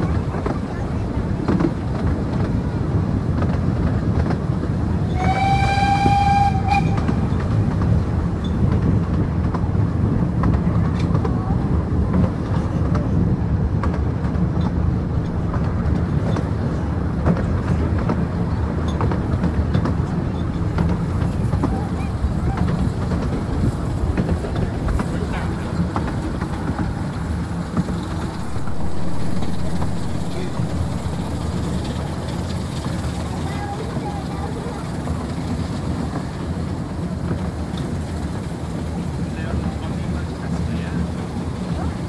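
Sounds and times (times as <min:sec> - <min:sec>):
train wheels rumbling on rails: 0:00.0 - 0:42.0
steam whistle: 0:05.1 - 0:07.4, 0:28.4 - 0:33.4.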